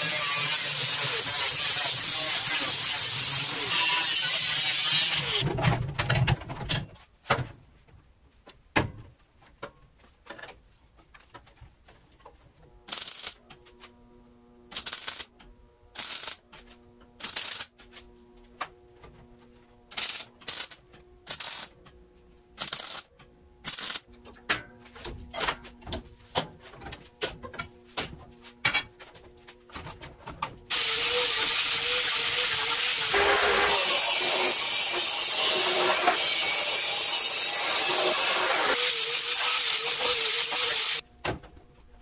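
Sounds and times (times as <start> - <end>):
angle grinder cutting sheet steel: 0.0 - 5.4, 30.7 - 41.0
crackling tack welds: 0.0 - 5.4, 12.9 - 13.5, 14.7 - 16.5, 17.2 - 17.7, 19.9 - 21.8, 22.6 - 24.1, 30.7 - 41.0.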